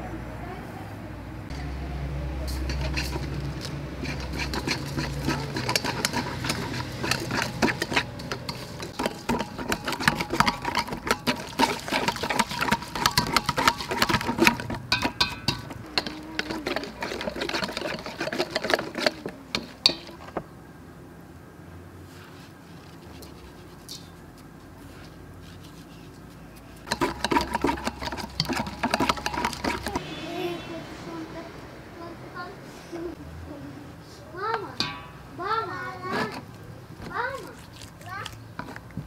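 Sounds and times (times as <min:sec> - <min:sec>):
whisk clinking in metal bowl: 0:02.5 - 0:20.2, 0:26.9 - 0:30.0.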